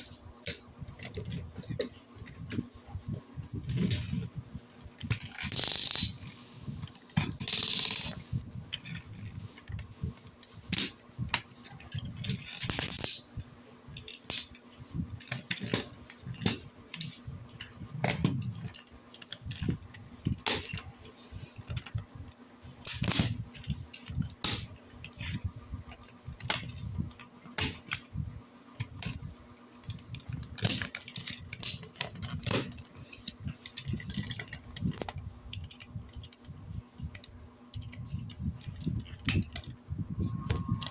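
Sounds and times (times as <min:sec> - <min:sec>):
plastic toy parts clicking: 0:04.8 - 0:13.3, 0:13.9 - 0:28.1, 0:28.8 - 0:39.8, 0:40.5 - 0:40.9
plastic scraping: 0:28.8 - 0:40.9.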